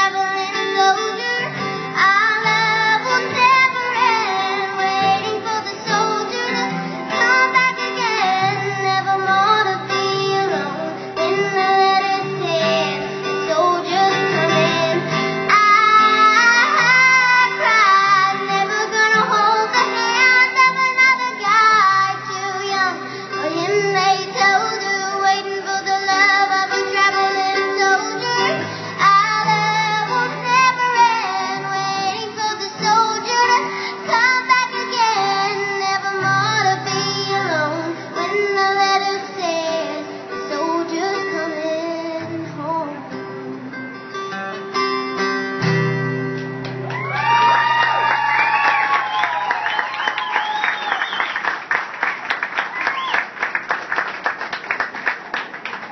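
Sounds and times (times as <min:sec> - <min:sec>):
girl singing: 0:00.0 - 0:43.5
acoustic guitar: 0:00.0 - 0:55.9.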